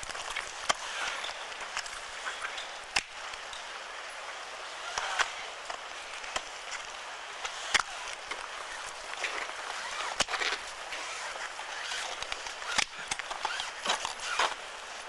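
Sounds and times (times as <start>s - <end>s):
steady hiss: 0.0s - 15.0s
ice tools striking ice: 7.4s - 14.6s.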